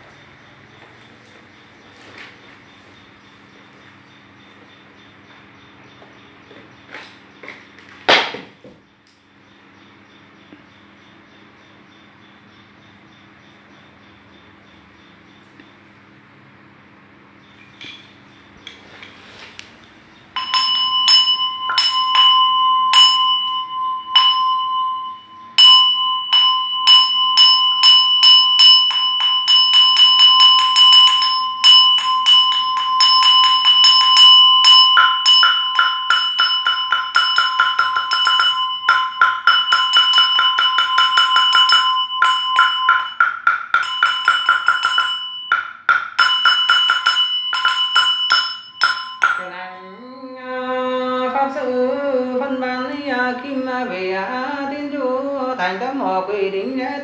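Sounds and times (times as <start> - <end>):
brass bowl bell struck: 20.4 - 49.5
lower ringing tone: 20.4 - 55.1.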